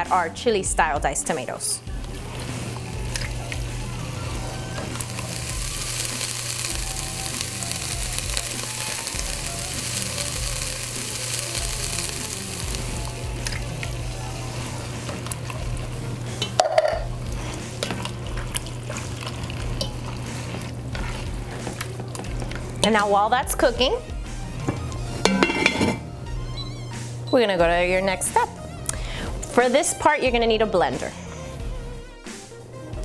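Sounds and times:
meat sizzling in a pot: 2.0s - 22.8s
spatula scraping a pot: 16.4s - 22.8s.

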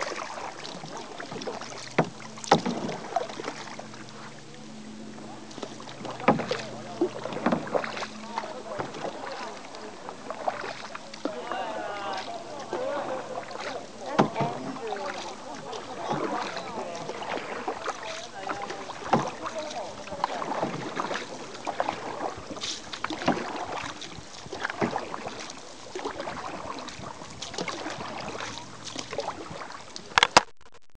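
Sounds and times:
water splashing around boat hull: 0.0s - 30.7s
faint voices: 3.1s - 22.6s.

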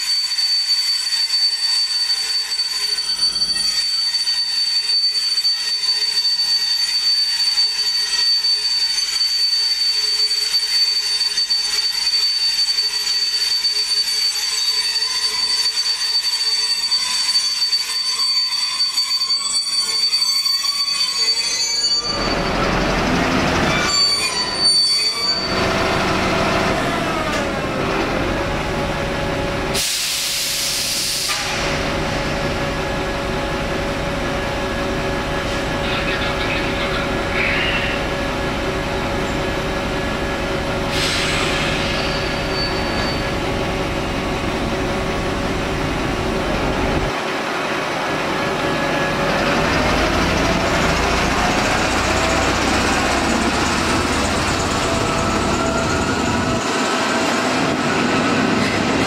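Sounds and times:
high-pitched wheel squeal: 0.0s - 47.2s, 48.5s - 59.0s
locomotive diesel engine: 22.1s - 24.6s, 25.2s - 59.0s.

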